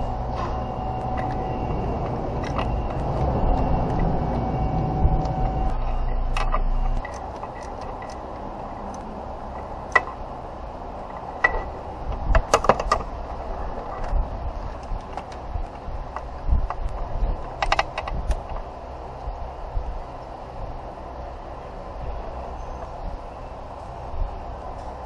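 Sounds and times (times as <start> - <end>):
tools and parts clicking and rattling: 0.0 - 4.2, 5.2 - 10.3, 11.0 - 18.7
steady background hum: 0.0 - 25.0.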